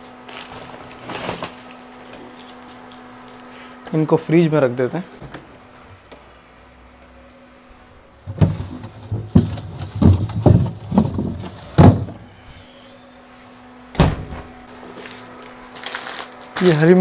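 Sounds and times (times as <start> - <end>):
groceries thudding into freezer: 0.3 - 1.8, 8.2 - 12.3, 14.0 - 17.0.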